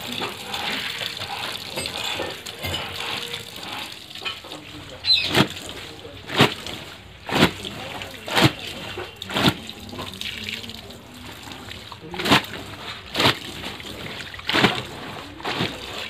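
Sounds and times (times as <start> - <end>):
tap water running onto concrete: 0.0 - 16.0
wet cloth splats: 5.2 - 10.7, 11.7 - 16.0.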